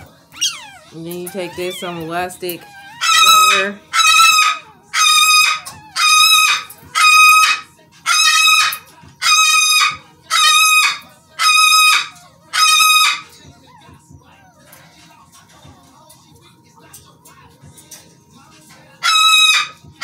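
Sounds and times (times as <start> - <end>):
puppy crying high-pitched: 0.3 - 13.9, 19.0 - 19.8.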